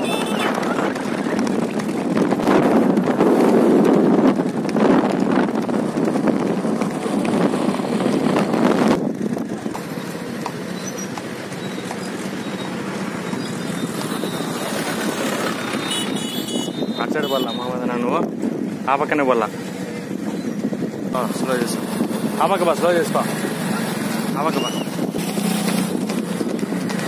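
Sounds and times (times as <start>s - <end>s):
wind on microphone: 0.0s - 9.8s, 20.0s - 22.7s, 23.3s - 27.0s
motor vehicle running: 0.0s - 27.0s.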